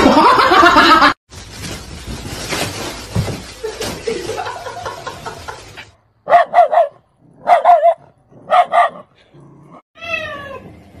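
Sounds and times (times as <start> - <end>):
small dog barking: 6.2 - 9.1.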